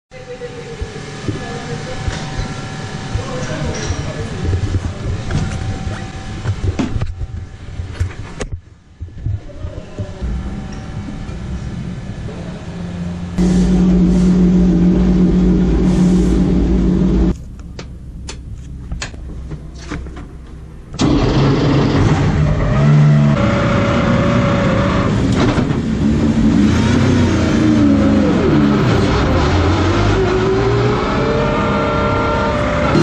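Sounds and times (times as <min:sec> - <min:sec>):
racing car engine revving: 0:10.3 - 0:17.4, 0:21.0 - 0:33.0.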